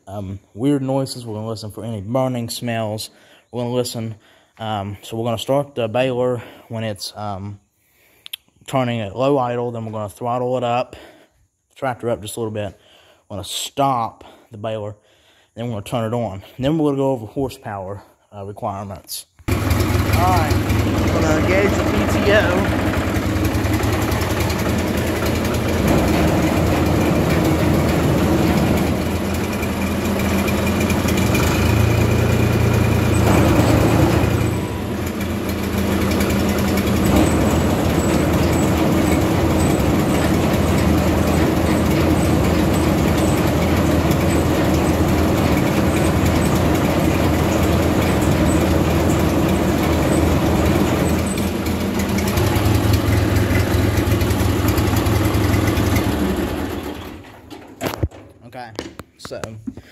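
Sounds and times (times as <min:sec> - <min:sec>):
tractor engine running: 0:19.5 - 0:58.3
baler rollers and chains squeaking: 0:19.7 - 0:57.6.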